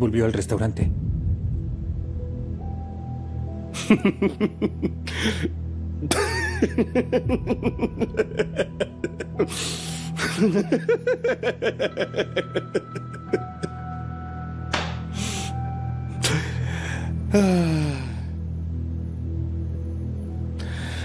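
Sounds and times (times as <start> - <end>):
soft background music: 0.0 - 21.0
man laughing hard: 3.7 - 13.9
gasping in-breaths: 5.0 - 5.6, 16.2 - 18.4.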